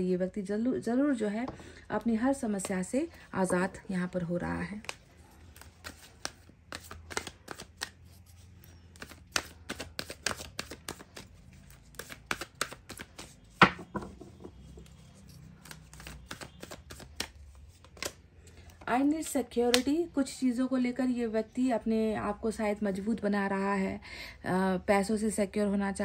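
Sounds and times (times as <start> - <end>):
cards being shuffled: 4.8 - 13.8, 15.1 - 18.8.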